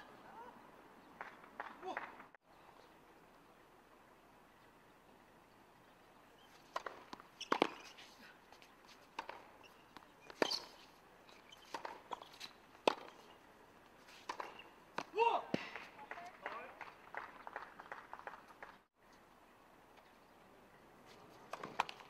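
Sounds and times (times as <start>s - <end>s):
tennis ball bouncing: 6.7s - 7.9s, 9.1s - 10.7s, 11.5s - 13.2s, 14.2s - 15.9s
racket hitting tennis ball: 6.7s - 8.2s, 9.1s - 10.8s, 11.5s - 13.3s, 14.1s - 15.9s.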